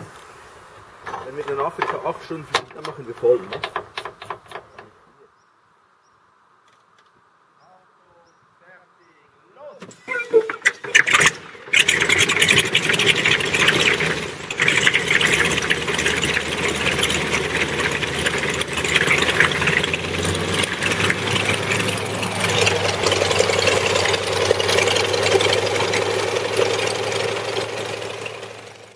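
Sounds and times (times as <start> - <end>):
radial aircraft engine running: 10.2 - 28.9.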